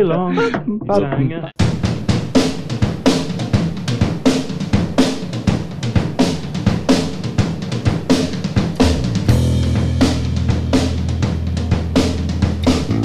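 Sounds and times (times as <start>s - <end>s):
rock drum kit beat: 1.6s - 13.0s
low bass guitar note: 8.8s - 13.0s.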